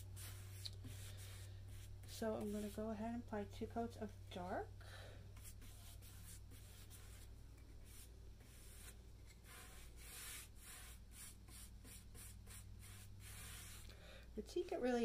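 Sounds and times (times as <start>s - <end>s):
paintbrush swishing on wood: 0.0s - 3.0s, 5.4s - 13.9s.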